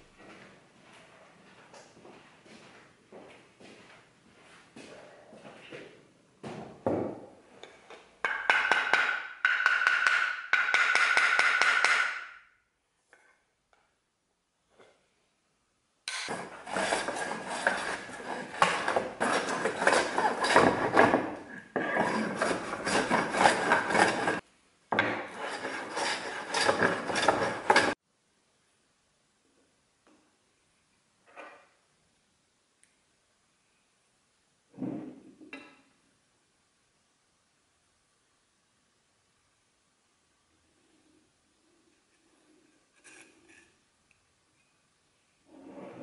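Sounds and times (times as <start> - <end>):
hand plane shaving wood: 16.3 - 24.4, 25.3 - 28.0.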